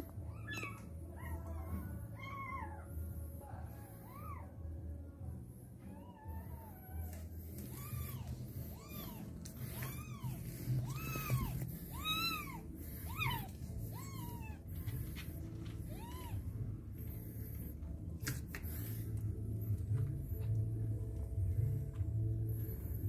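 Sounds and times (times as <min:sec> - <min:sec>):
faint background music: 0:00.0 - 0:23.0
kitten mewing: 0:07.7 - 0:14.9.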